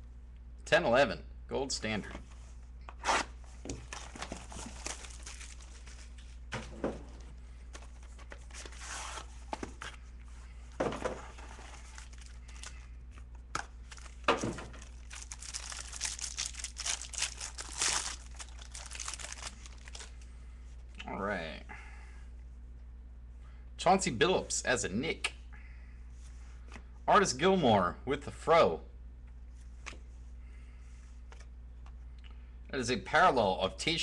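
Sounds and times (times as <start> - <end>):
plastic wrap crinkling: 3.7 - 6.4, 11.3 - 20.2.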